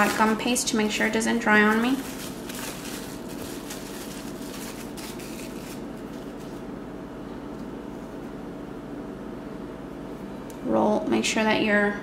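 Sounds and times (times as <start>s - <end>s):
plastic wrap crinkling: 0.0s - 6.7s
steady room hum: 0.0s - 12.0s.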